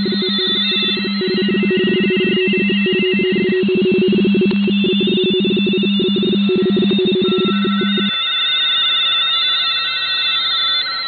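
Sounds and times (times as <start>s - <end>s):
radioteletype signals warbling: 0.0s - 8.4s.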